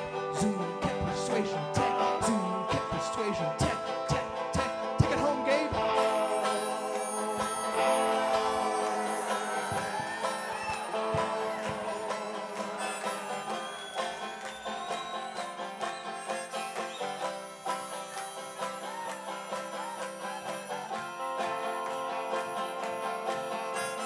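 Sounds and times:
banjo playing: 0:00.0 - 0:24.0
guitar: 0:00.0 - 0:24.0.

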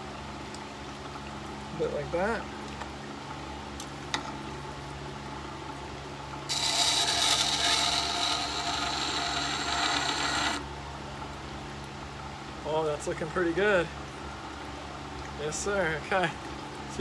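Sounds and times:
blade grinding on sharpening stone: 0:06.5 - 0:10.6
grinder motor humming: 0:06.5 - 0:10.7.

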